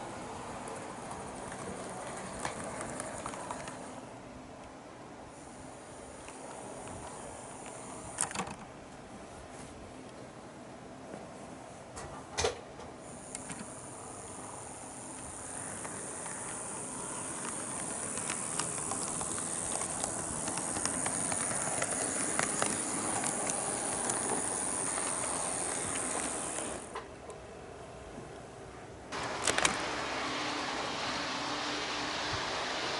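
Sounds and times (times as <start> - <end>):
wheels ticking over track joints: 0.0 - 4.0, 12.4 - 27.1
model train motor whine: 0.0 - 4.2, 5.3 - 8.6, 13.0 - 27.1, 29.2 - 32.9.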